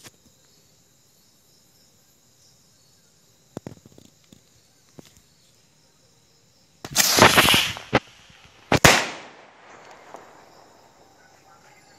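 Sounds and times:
firework rocket launching hiss: 6.8 - 10.4
firework bursting bang: 6.8 - 11.0.

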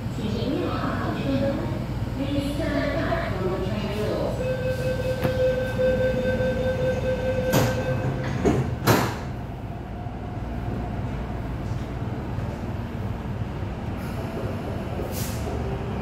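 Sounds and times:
train low hum: 0.0 - 16.0
door warning tone: 4.4 - 8.6.

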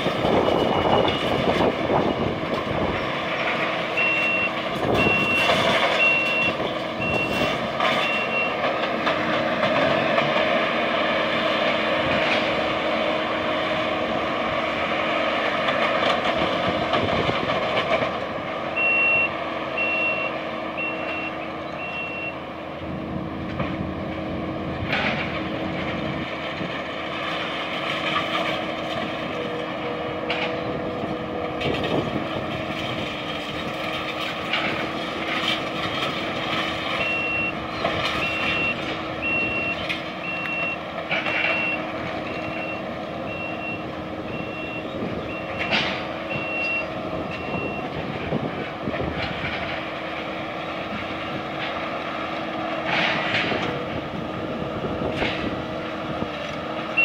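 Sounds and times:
diesel engine running: 0.0 - 57.0
back-up alarm beeping: 4.0 - 8.6, 18.7 - 22.4, 38.2 - 47.9.

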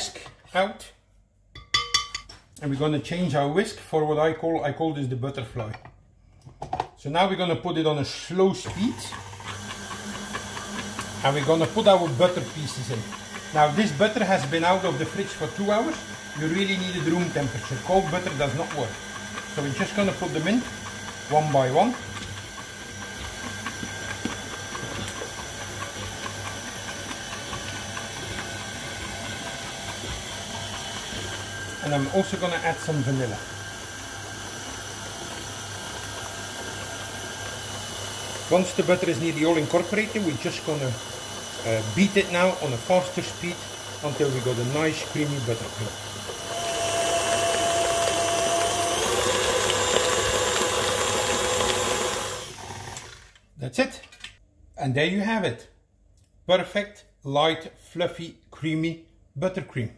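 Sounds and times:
cream churning: 7.2 - 53.4
stand mixer motor hum: 8.6 - 53.4.

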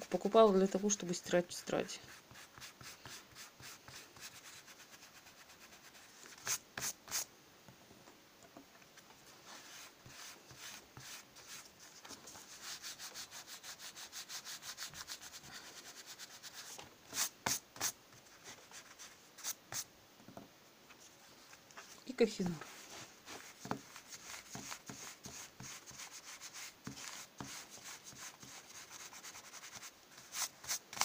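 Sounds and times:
eraser scrubbing on paper: 9.4 - 18.0, 22.7 - 31.0.

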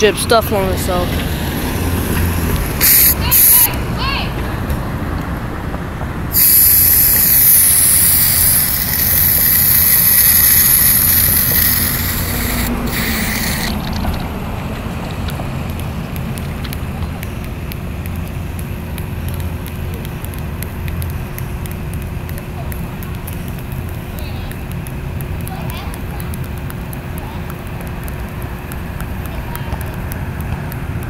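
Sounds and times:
aerosol can spraying: 2.8 - 3.7, 6.3 - 13.8.

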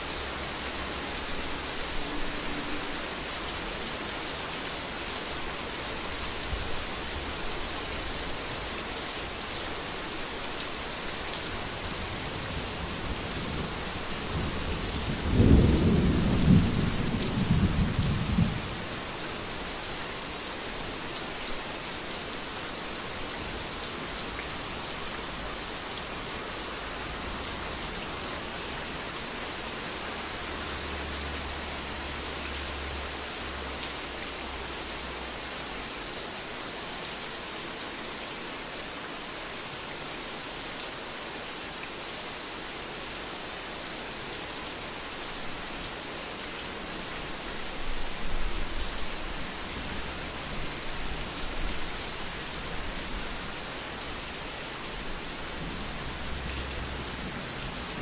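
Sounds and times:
heavy rain: 0.0 - 58.0
thunder rumbling: 13.7 - 18.6.

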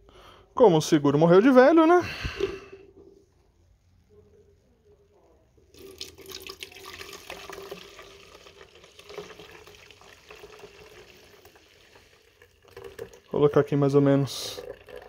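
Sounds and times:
crackles of frothing liquid: 2.6 - 15.0
liquid pouring into plastic bottle: 5.7 - 15.0.

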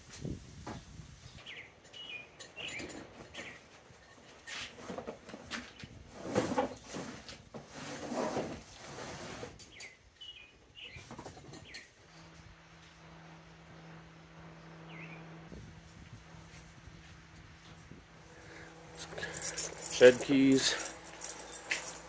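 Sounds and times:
boxes knocking and scraping: 2.6 - 9.7
steady low hum: 12.0 - 22.0.

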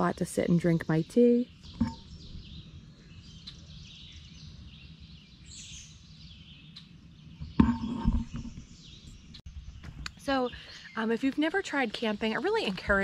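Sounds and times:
faint songbirds chirping: 0.0 - 13.0
open-air background noise: 0.0 - 13.0.

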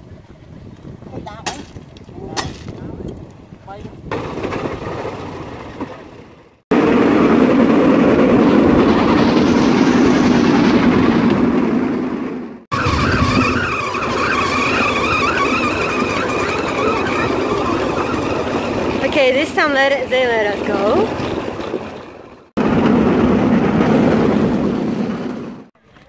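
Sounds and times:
wheels rattling on rail track: 0.1 - 25.7
small engine whine: 12.7 - 19.1.

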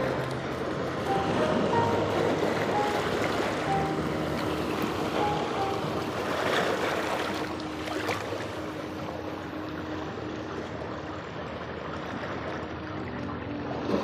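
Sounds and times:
waves washing over rocks: 0.0 - 10.0.

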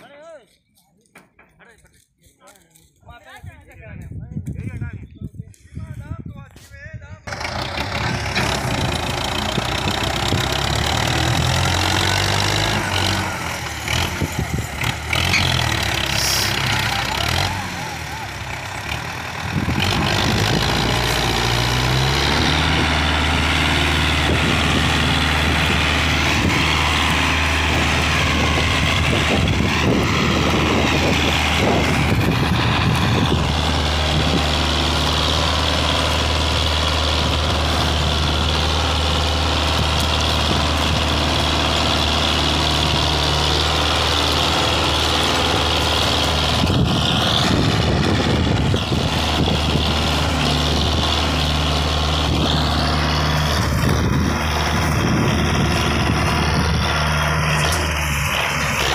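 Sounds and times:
tractor diesel engine working hard: 7.2 - 58.9.

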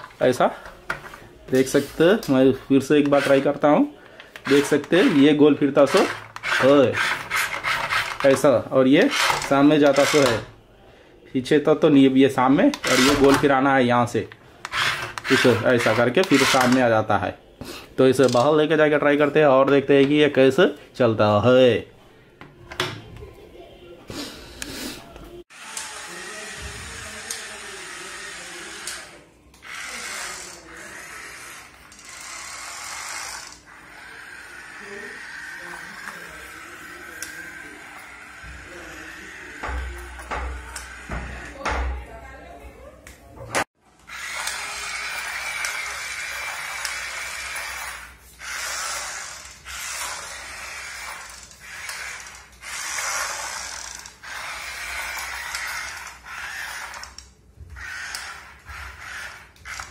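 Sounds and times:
toy electric motor whirring: 2.9 - 3.6, 4.4 - 10.5, 12.8 - 13.5, 14.6 - 16.8, 25.5 - 41.7, 44.0 - 59.9.

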